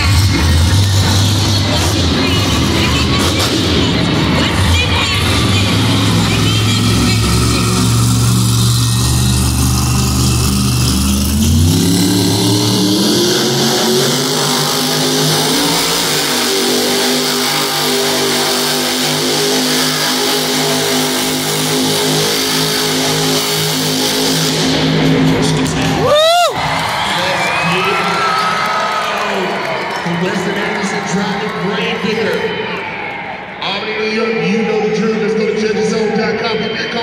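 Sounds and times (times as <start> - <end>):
monster truck engine revving: 0.0 - 37.0.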